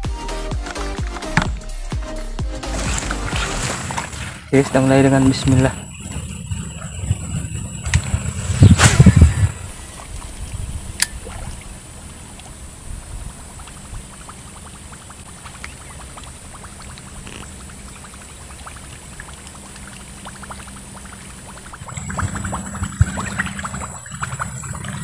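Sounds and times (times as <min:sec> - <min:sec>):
low rumble: 0:01.5 - 0:14.2
lure splashing on water: 0:02.6 - 0:12.6.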